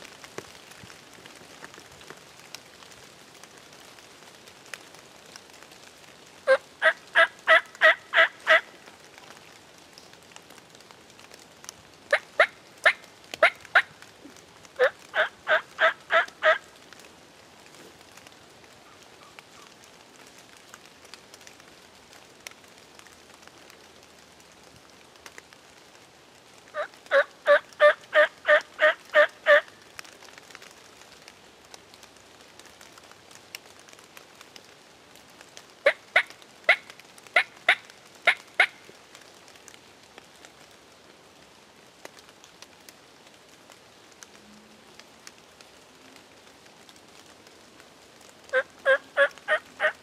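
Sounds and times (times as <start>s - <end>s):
wild turkey yelping: 6.5s - 8.7s, 14.8s - 16.7s, 26.8s - 29.7s, 48.5s - 50.0s.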